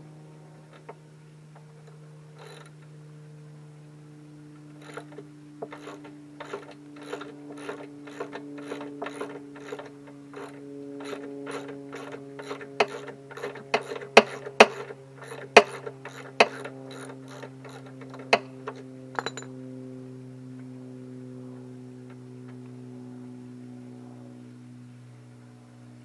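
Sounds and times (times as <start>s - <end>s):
steady hum: 0.0s - 26.0s
sharp knocks: 4.8s - 18.5s
ratchet wrench clicking: 4.8s - 19.5s.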